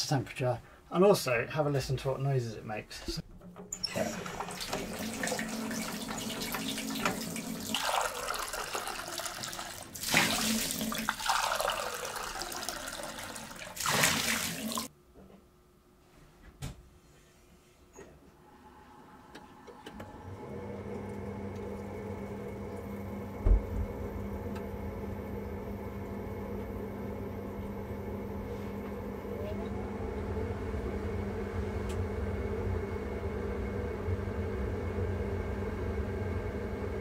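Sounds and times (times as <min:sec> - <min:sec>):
boiler fan humming: 0:00.0 - 0:15.2, 0:18.0 - 0:37.0
thump: 0:23.4 - 0:23.8.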